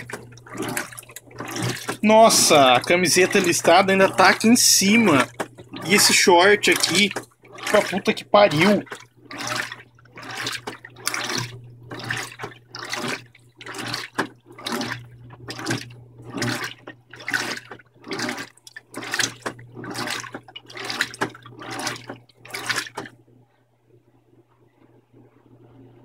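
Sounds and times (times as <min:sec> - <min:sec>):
water sloshing in washer: 0:00.0 - 0:23.7
washer motor hum: 0:00.0 - 0:26.0.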